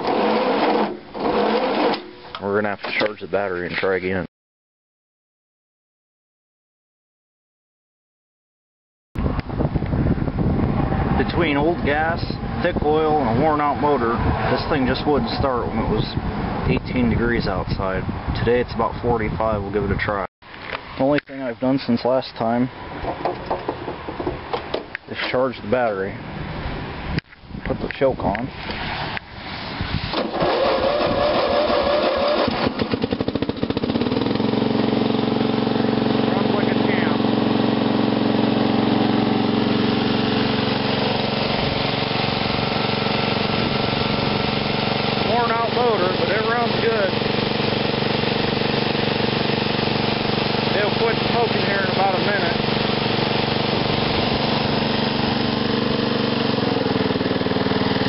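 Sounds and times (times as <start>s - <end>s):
electric starter cranking: 0.0s - 2.4s, 30.1s - 58.0s
mower engine running: 0.0s - 2.4s, 30.1s - 58.0s.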